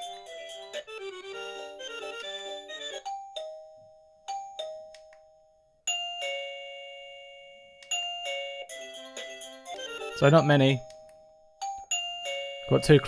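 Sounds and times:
doorbell multi-note tune: 0:00.0 - 0:13.0
doorbell ding-dong chime: 0:03.1 - 0:09.0, 0:09.7 - 0:13.0.

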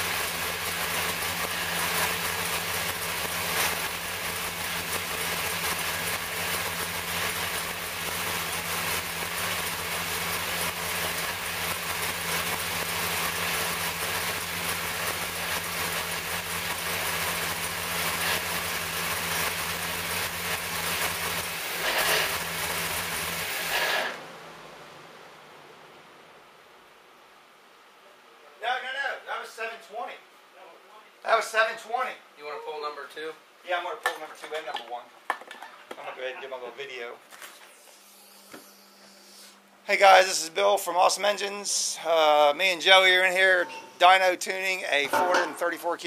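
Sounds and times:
racing engine running: 0:00.0 - 0:27.0.

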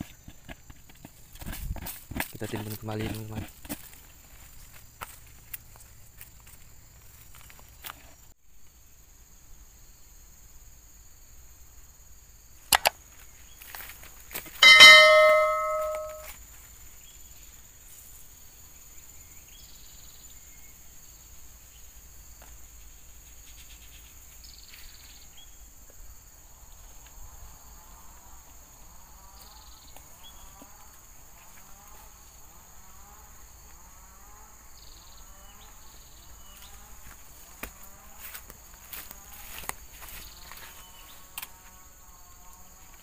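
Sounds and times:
faint outdoor background: 0:00.0 - 0:43.0
bright bell chime: 0:14.6 - 0:16.3
soft chirping: 0:14.6 - 0:16.3.

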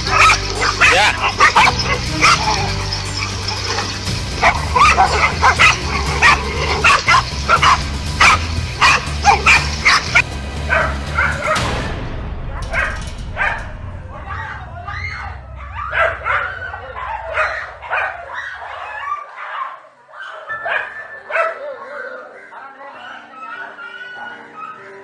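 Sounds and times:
dogs barking and yelping: 0:00.0 - 0:11.8, 0:12.6 - 0:25.0
steady low hum: 0:12.0 - 0:19.1.

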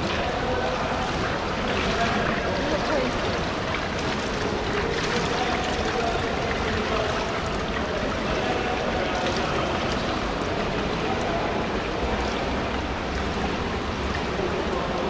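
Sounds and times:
pool water sloshing and lapping: 0:00.0 - 0:15.0.

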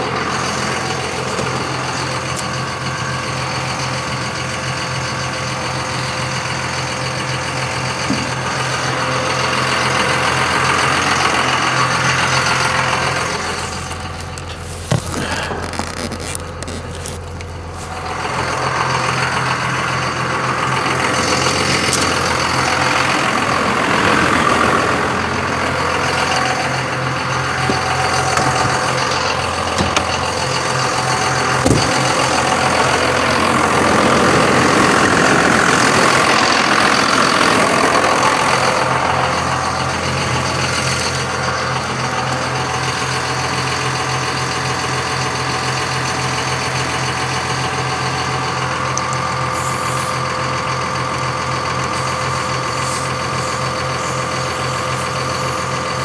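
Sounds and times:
motor humming: 0:00.0 - 0:44.5.

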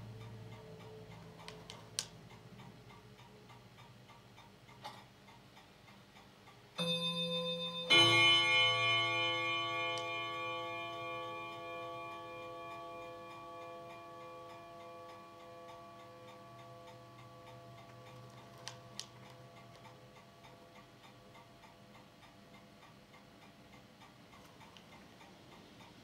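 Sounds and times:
bell-like ringing chord: 0:06.8 - 0:18.2.

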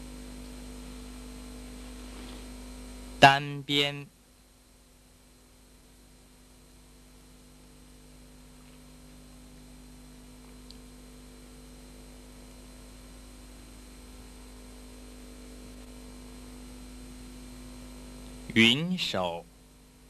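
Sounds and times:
background hiss: 0:00.0 - 0:04.6, 0:12.5 - 0:20.0
electrical hum: 0:00.0 - 0:20.0
faint tick: 0:10.6 - 0:10.8.

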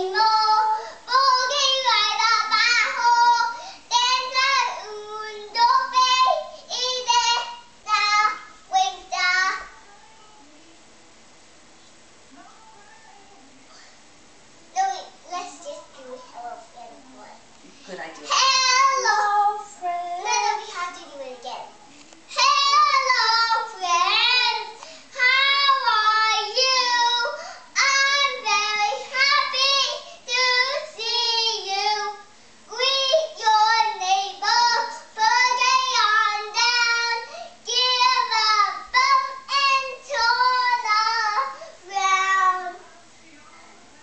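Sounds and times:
boy singing: 0:00.0 - 0:10.5, 0:18.3 - 0:21.7, 0:22.3 - 0:42.9.

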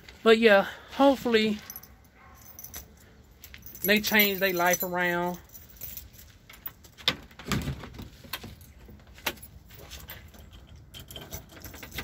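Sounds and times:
keys jingling: 0:01.6 - 0:07.0, 0:08.4 - 0:12.0.

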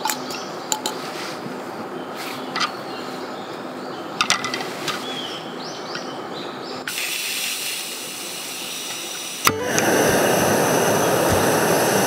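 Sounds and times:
gas hissing from stove: 0:06.8 - 0:12.0.

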